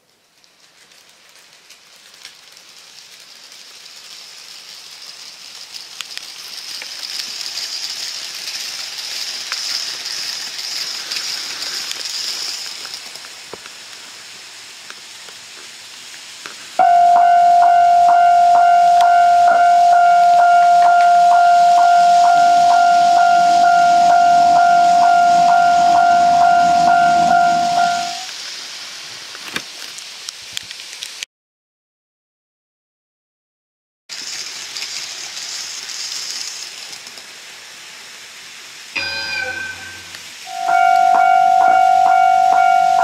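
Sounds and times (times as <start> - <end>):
model train running on track: 2.2 - 15.5, 16.1 - 28.3, 34.2 - 43.0
level-crossing warning bell: 16.8 - 28.3, 39.0 - 43.0.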